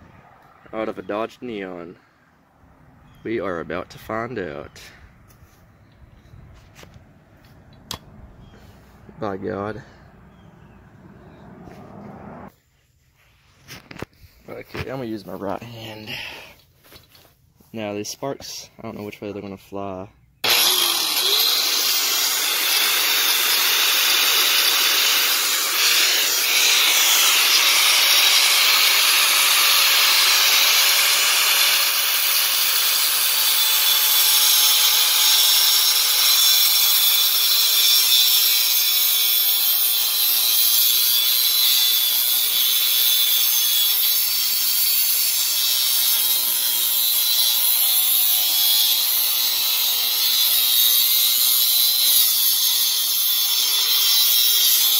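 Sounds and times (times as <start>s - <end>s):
angle grinder cutting metal: 20.4s - 54.9s.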